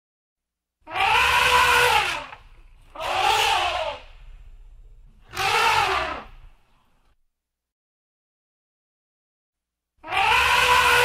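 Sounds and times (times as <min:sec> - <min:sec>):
elephant trumpeting: 0:00.9 - 0:04.2, 0:05.2 - 0:06.5, 0:10.0 - 0:11.0.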